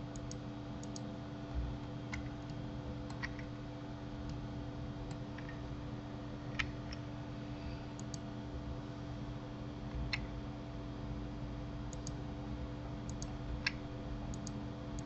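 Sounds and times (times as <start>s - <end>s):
steady low hum: 0.0s - 15.0s
computer mouse and keyboard clicks: 0.1s - 1.1s, 2.1s - 3.5s, 8.0s - 8.2s, 11.9s - 12.2s, 13.1s - 15.0s.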